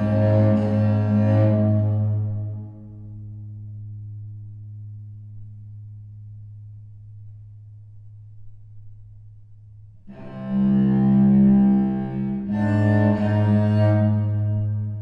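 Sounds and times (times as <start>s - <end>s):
solo cello playing slowly: 0.0s - 4.4s, 10.0s - 15.0s.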